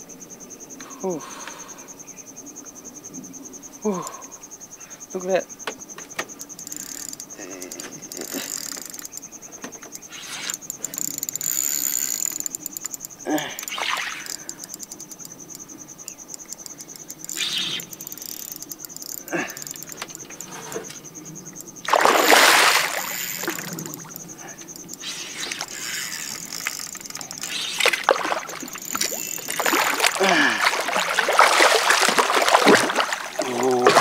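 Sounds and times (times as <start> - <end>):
high-pitched insect buzz: 0.8 - 34.0
fish splashing at surface: 21.9 - 23.6, 27.7 - 34.0.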